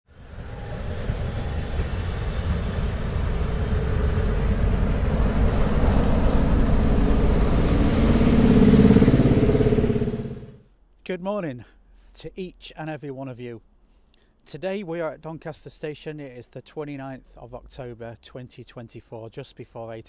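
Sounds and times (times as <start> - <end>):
diesel locomotive throbbing: 0.1 - 10.6.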